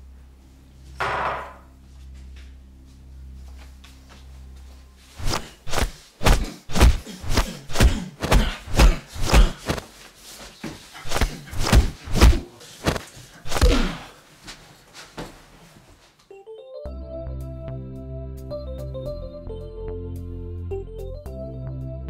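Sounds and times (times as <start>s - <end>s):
low steady hum: 0.0s - 9.6s.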